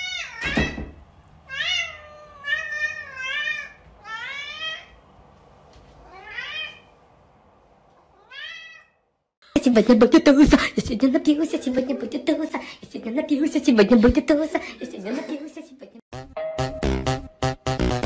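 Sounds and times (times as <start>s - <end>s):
cat meowing: 0.0s - 0.8s, 1.5s - 5.0s, 6.0s - 6.9s, 8.1s - 9.0s.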